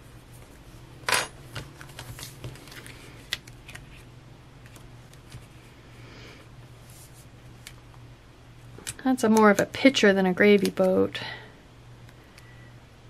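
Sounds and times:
faint low hum: 0:00.0 - 0:13.0
paper pages rustling: 0:01.5 - 0:05.6.

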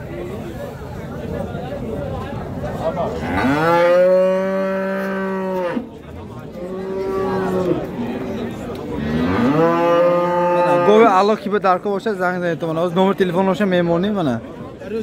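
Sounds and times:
cattle mooing: 0:03.2 - 0:05.8, 0:06.6 - 0:07.9, 0:09.0 - 0:11.1.

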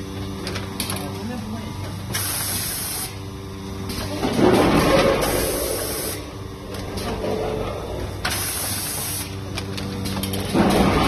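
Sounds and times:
machine motor hum: 0:00.0 - 0:11.0
compressed air hisses: 0:02.2 - 0:03.2.

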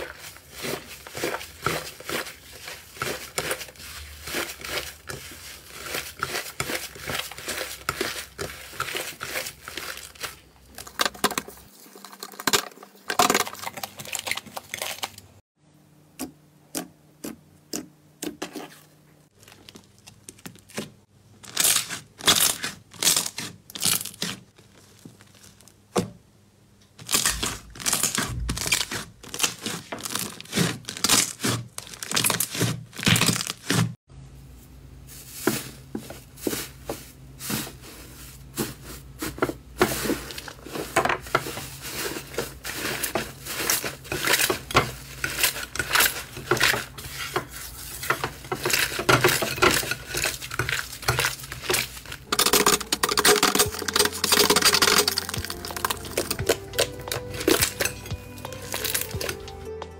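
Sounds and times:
slime squelching: 0:00.0 - 0:15.4, 0:27.0 - 0:34.0, 0:35.1 - 0:59.5
slime crackling and popping: 0:21.4 - 0:25.8, 0:27.0 - 0:33.9, 0:48.5 - 0:57.9, 0:58.5 - 0:59.4.

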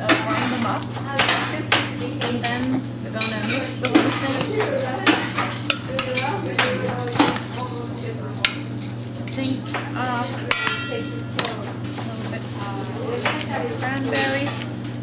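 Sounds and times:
spoon clinking against metal pot: 0:02.2 - 0:11.6
spoon stirring dry muesli: 0:03.2 - 0:10.7.

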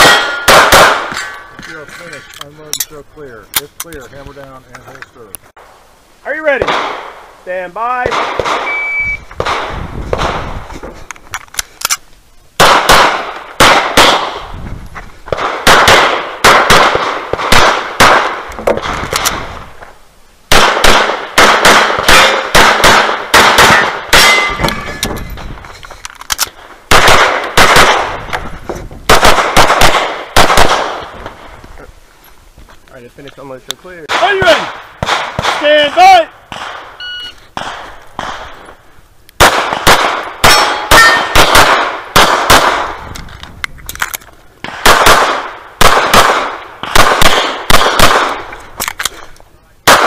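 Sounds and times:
shot timer beep: 0:08.6 - 0:09.3, 0:37.0 - 0:37.4
pistol shots in rapid strings: 0:39.4 - 0:42.9, 0:44.8 - 0:48.4.

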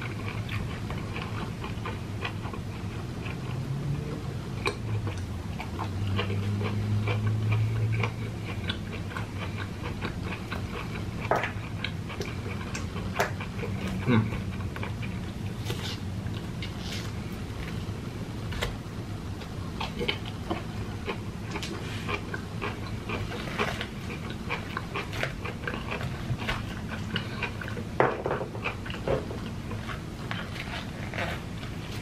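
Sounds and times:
steady low hum: 0:00.0 - 0:32.0
wet mouth clicks and chewing: 0:04.6 - 0:15.8, 0:19.8 - 0:27.9.

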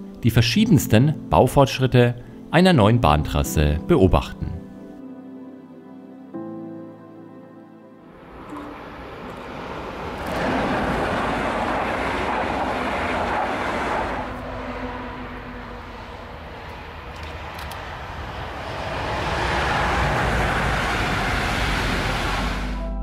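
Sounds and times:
train passing at speed: 0:08.0 - 0:23.0
wheels rumbling on rails: 0:08.1 - 0:23.0.

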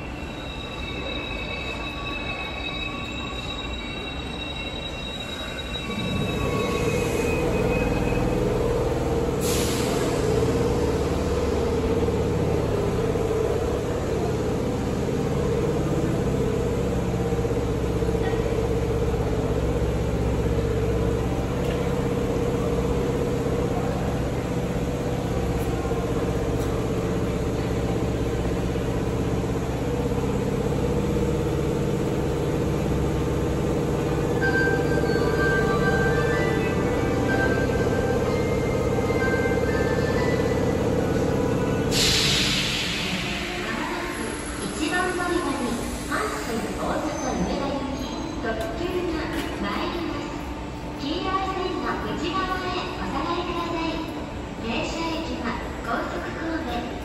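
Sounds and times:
train wheel squeal: 0:00.0 - 0:10.7, 0:34.0 - 0:48.8
heavy train rumble: 0:00.0 - 0:57.0.

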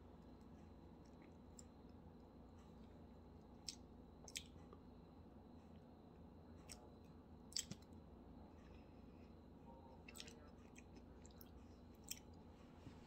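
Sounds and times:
wet mouth clicks from chewing: 0:03.6 - 0:04.6, 0:07.5 - 0:07.9.

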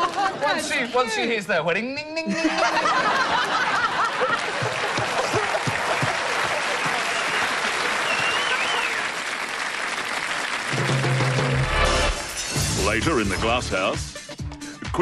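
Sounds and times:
audience laughing: 0:00.0 - 0:00.7, 0:02.3 - 0:09.0
audience applauding: 0:00.0 - 0:01.0, 0:03.0 - 0:12.1.

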